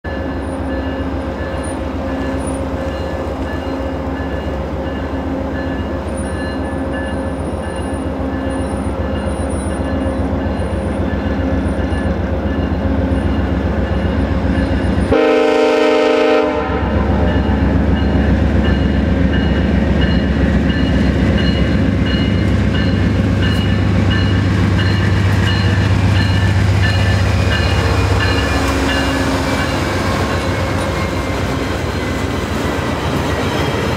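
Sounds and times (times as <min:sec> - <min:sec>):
diesel locomotive engine running: 0:00.0 - 0:33.9
train horn blast: 0:15.1 - 0:17.5.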